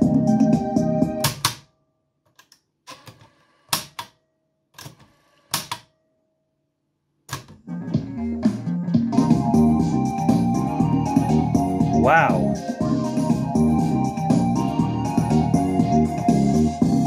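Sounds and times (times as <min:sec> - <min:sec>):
music playing from cassette deck: 0:07.6 - 0:17.0.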